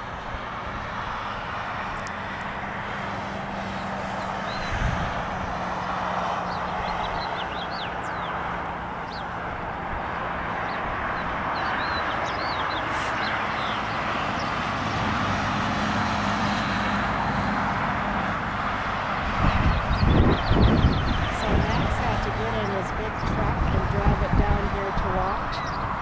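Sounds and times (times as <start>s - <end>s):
distant engine drone: 0.0s - 26.0s
small birds chirping: 3.7s - 5.2s, 6.3s - 9.4s, 10.5s - 14.7s, 19.5s - 23.6s, 24.9s - 26.0s.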